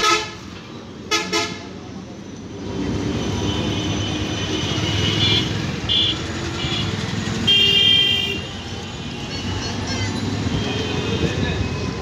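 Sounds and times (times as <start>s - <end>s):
street traffic rumbling: 0.0s - 12.0s
vehicle horns tooting: 3.5s - 11.5s.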